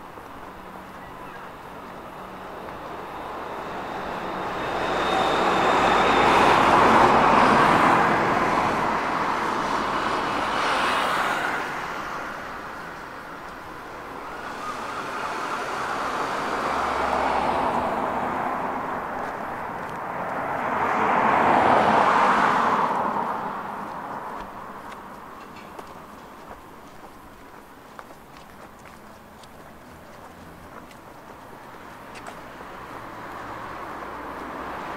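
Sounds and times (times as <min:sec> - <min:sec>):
cars passing: 0:00.0 - 0:34.9.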